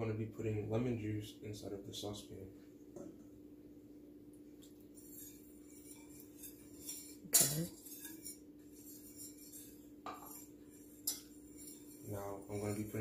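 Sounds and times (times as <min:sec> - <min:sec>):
faint steady hum: 0:00.0 - 0:13.0
whisk clinking against metal pan: 0:04.9 - 0:13.0.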